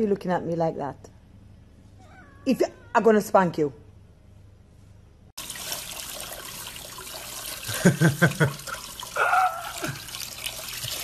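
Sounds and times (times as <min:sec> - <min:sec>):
water running from faucet: 0:05.4 - 0:11.0.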